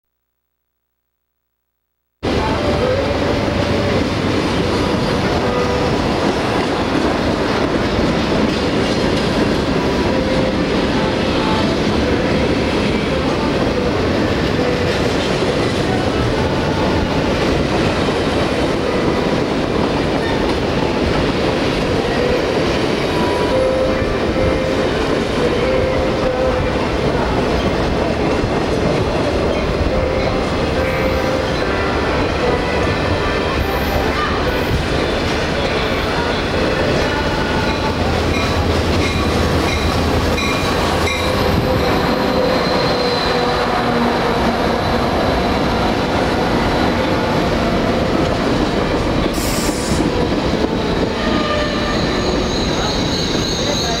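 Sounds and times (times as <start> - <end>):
steel wheels clattering on rail: 3.2 - 10.9, 11.7 - 54.0
wheel squeals: 39.8 - 43.6, 50.8 - 54.0.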